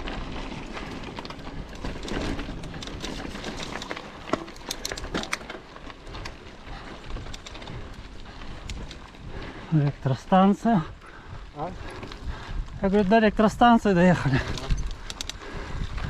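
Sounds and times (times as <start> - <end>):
bike tyres crunching on stones: 0.0 - 16.0
clicks and rattles: 1.2 - 6.4, 14.3 - 15.4.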